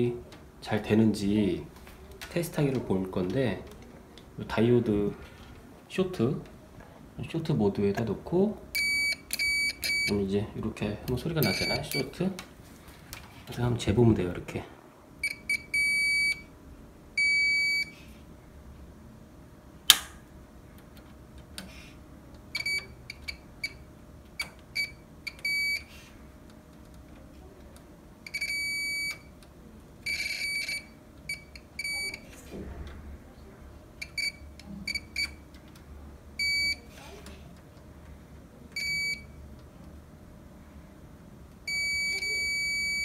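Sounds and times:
multimeter continuity beeps: 8.7 - 10.2, 11.4 - 12.2, 15.2 - 16.5, 17.2 - 18.0, 22.5 - 25.9, 28.2 - 29.3, 30.0 - 32.3, 34.0 - 35.4, 36.4 - 36.9, 38.8 - 39.4, 41.7 - 43.0
sharp click: 19.9 - 20.2.

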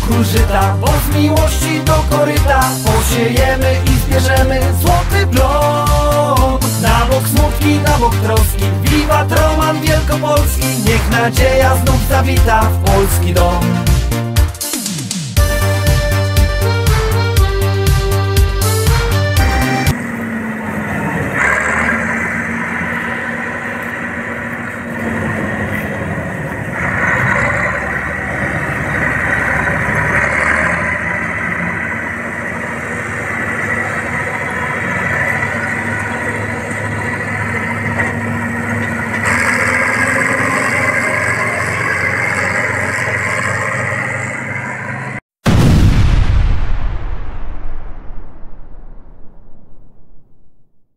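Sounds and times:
diesel engine droning: 0.0 - 46.2.

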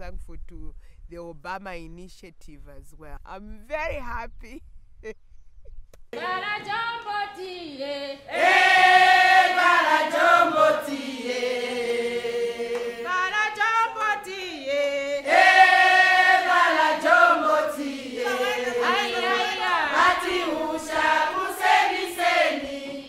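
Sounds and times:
women singing chant-like song: 6.2 - 23.0.

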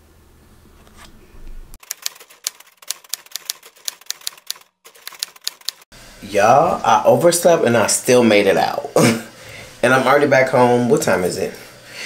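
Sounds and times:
typewriter key clicks: 1.8 - 5.8.

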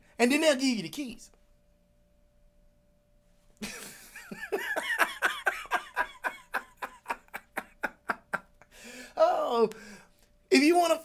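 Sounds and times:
man laughing hard: 3.6 - 8.7.

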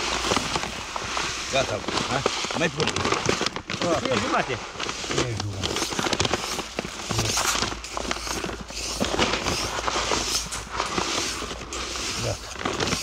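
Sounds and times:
granules pouring into plastic hopper: 0.0 - 13.0.

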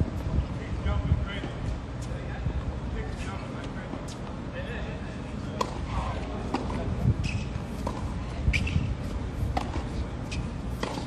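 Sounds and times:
steady low rumble: 0.0 - 3.8, 4.5 - 11.0
tennis balls struck with rackets: 5.5 - 11.0
balls bouncing on hard court: 6.5 - 8.9, 9.5 - 11.0.

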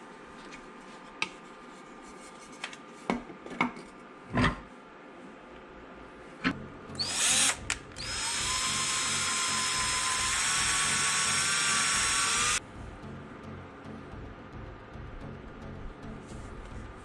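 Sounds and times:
power drill drilling into wood: 7.0 - 12.6.

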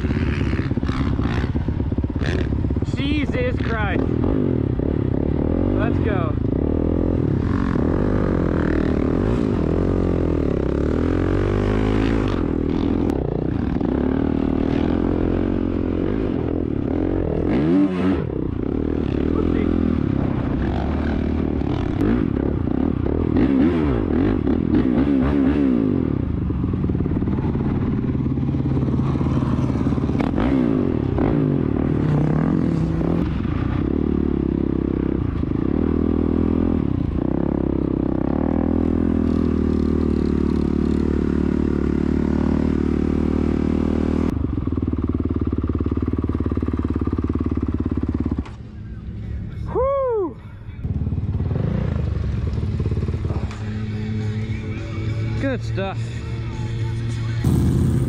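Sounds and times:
dirt bike engine revving: 0.0 - 44.3, 57.1 - 58.0.

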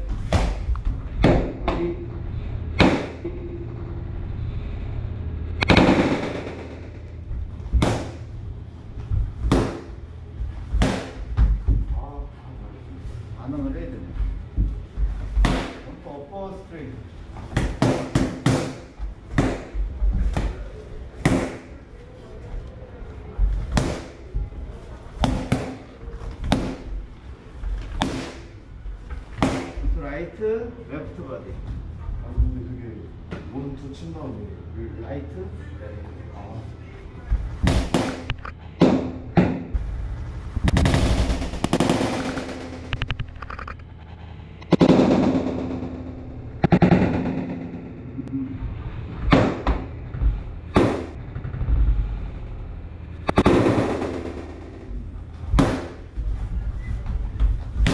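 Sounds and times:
boxing gloves slapping mitts: 0.1 - 1.8, 7.7 - 8.2, 9.4 - 10.0, 10.7 - 11.6, 15.2 - 15.9, 17.5 - 20.6, 25.2 - 26.9, 27.8 - 28.6, 29.3 - 29.8, 37.6 - 39.6, 55.5 - 56.1.

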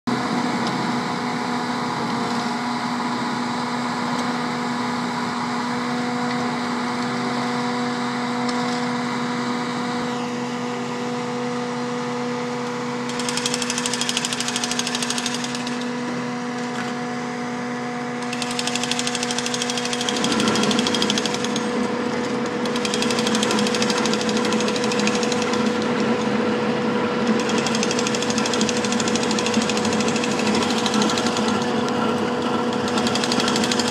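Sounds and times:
loader engine running: 0.1 - 33.9
milling attachment grinding pavement: 29.8 - 33.9.

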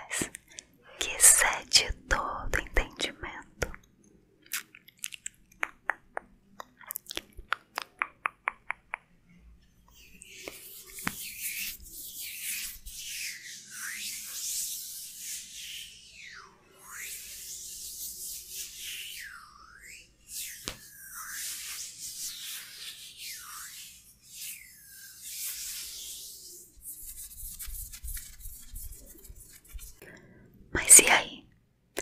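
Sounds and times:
hands rubbing together: 10.2 - 15.3, 24.8 - 30.0.

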